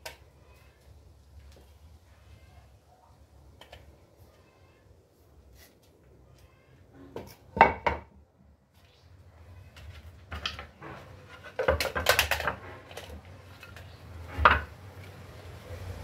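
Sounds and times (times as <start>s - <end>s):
wooden boards knocking on concrete: 7.1s - 8.2s, 10.2s - 13.1s, 14.3s - 14.8s.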